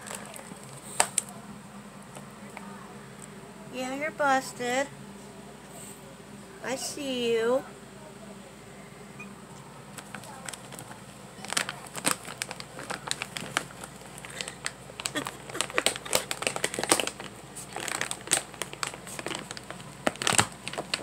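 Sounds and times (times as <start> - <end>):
food bag crinkling: 0.0 - 1.3, 10.0 - 21.0.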